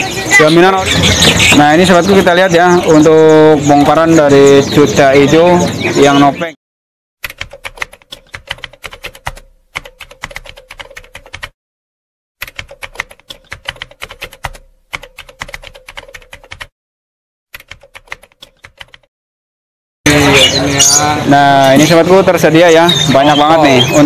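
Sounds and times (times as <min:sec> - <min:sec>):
rapid key clicks: 0:07.2 - 0:11.6, 0:12.4 - 0:16.7, 0:17.5 - 0:19.1.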